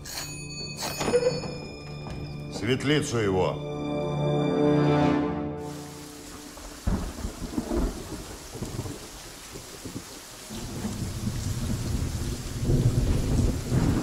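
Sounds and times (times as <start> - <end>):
steady rain: 5.6 - 14.0
rolling thunder: 6.2 - 14.0.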